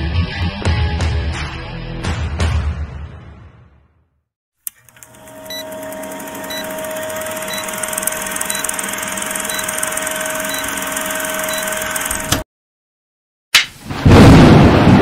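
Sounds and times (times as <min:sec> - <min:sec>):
click: 0:04.6 - 0:05.6
film projector running: 0:04.7 - 0:12.4.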